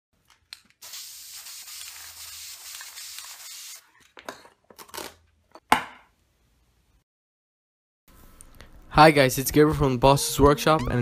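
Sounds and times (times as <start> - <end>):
spray paint can hissing: 0.8 - 3.8.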